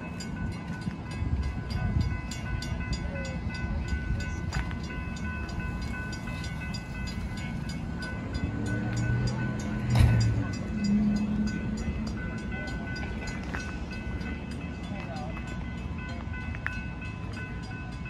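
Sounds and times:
crossing warning bell ringing: 0.0s - 18.0s
deep steady tones: 0.0s - 18.0s
train rumbling: 0.0s - 18.0s.

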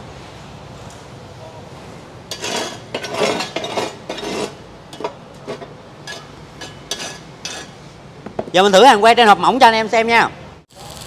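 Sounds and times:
metal scraping: 2.3s - 7.8s.

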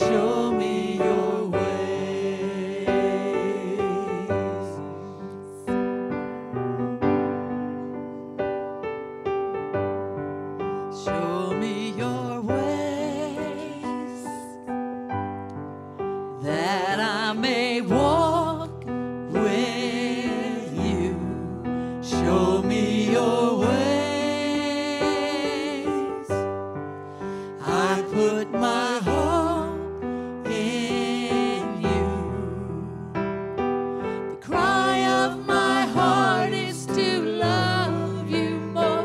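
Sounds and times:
group singing worship song: 0.0s - 5.8s, 11.0s - 14.7s, 16.4s - 26.4s, 27.2s - 33.2s, 34.1s - 39.0s
electric keyboard chords: 14.0s - 16.3s.

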